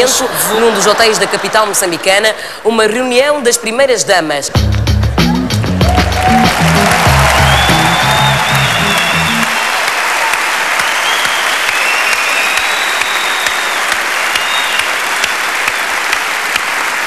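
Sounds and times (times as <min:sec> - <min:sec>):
theme music: 0:04.6 - 0:09.6
audience applauding: 0:05.6 - 0:17.0.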